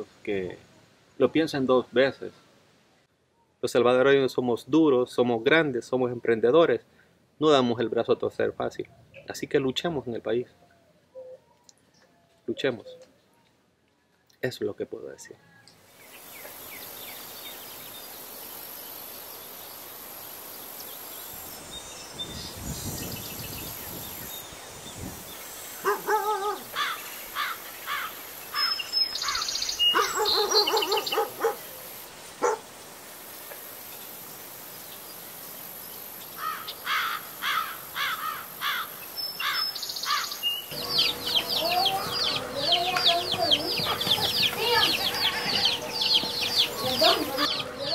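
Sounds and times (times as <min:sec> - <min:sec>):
birds calling: 0:15.2 - 0:47.9
steady hiss: 0:15.8 - 0:43.7.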